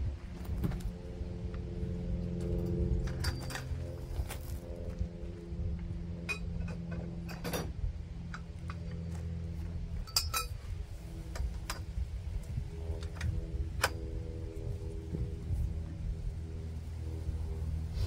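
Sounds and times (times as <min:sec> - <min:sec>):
steady low hum: 0:00.0 - 0:18.0
light metal clinks and taps: 0:10.0 - 0:10.6.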